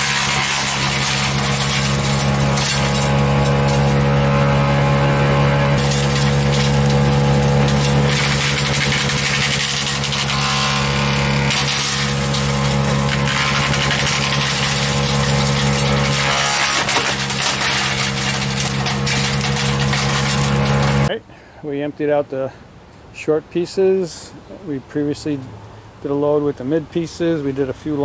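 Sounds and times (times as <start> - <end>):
wood chips rattling into box: 0.0 - 4.2, 5.8 - 21.1
wood chipper engine drone: 0.0 - 21.1.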